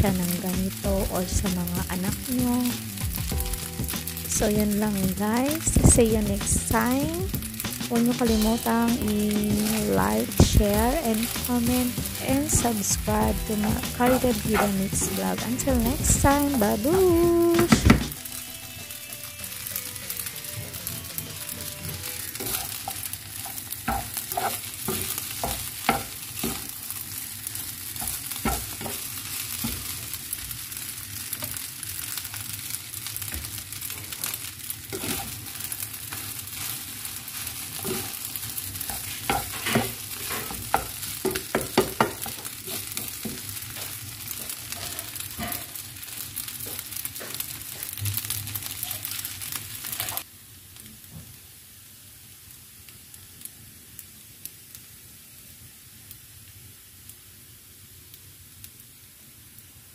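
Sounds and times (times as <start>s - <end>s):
rice sizzling in a pan: 0.0s - 59.9s
spatula scraping and tapping pan: 7.4s - 18.2s, 20.6s - 26.7s, 28.0s - 30.0s, 34.2s - 36.8s, 37.8s - 45.8s.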